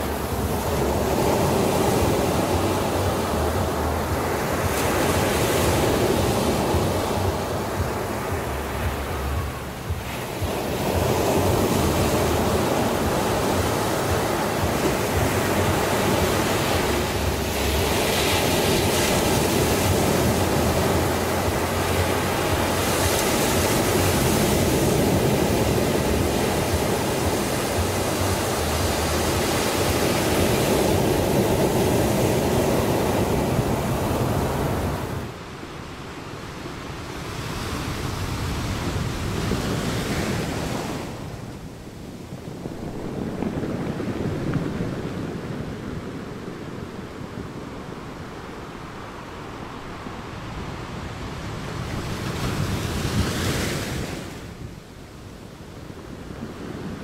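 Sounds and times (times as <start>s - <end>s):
waves breaking on a beach: 0.0s - 57.0s.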